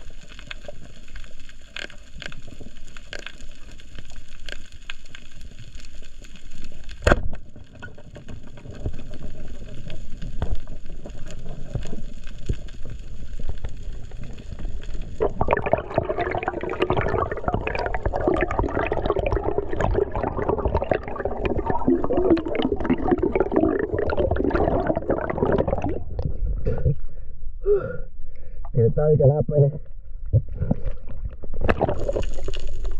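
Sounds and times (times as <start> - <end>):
underwater ticks: 0.0 - 26.3
gurgling air bubbles: 14.1 - 27.2, 30.4 - 32.9.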